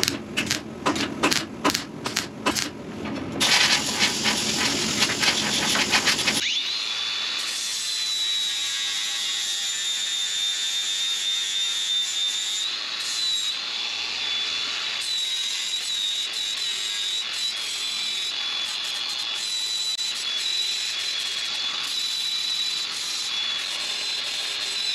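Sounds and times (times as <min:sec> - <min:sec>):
welding crackle: 0:03.4 - 0:06.4
angle grinder whining: 0:03.4 - 0:07.6.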